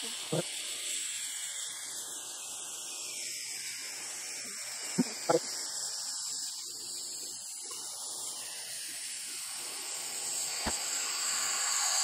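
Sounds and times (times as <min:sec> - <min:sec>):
hot-air plastic welder hissing: 0:00.0 - 0:12.0.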